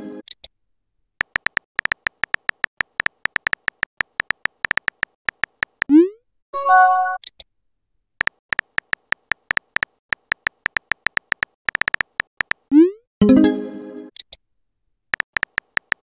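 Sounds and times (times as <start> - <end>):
keyboard tap clicks: 1.2 - 5.9, 8.2 - 12.7, 15.2 - 16.0.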